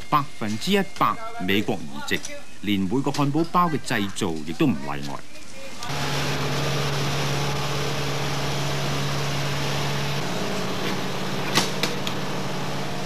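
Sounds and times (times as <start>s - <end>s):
truck engine humming: 5.9s - 13.0s.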